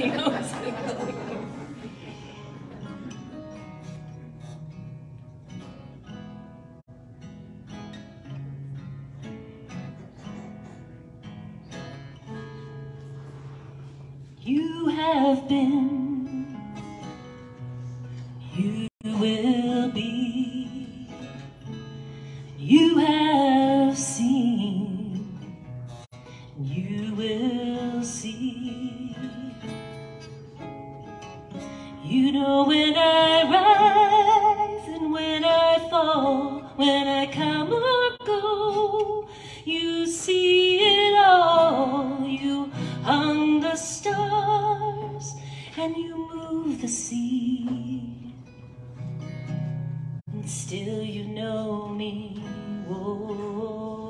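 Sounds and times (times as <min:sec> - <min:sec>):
acoustic guitar chords: 0:00.0 - 0:54.0
woman singing: 0:14.3 - 0:17.2, 0:18.3 - 0:21.8, 0:22.4 - 0:25.8, 0:26.4 - 0:30.1, 0:31.6 - 0:48.7, 0:50.3 - 0:54.0.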